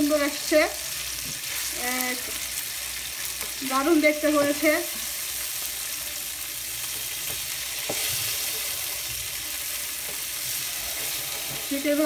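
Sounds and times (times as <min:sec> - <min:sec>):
fish sizzling in oil: 0:00.0 - 0:12.0
spatula tapping pan: 0:06.9 - 0:08.7.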